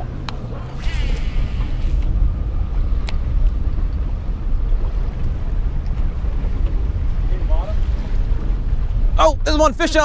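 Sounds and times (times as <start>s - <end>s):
wind buffeting microphone: 0.0s - 10.0s
fishing reel spool whirring: 0.7s - 2.2s.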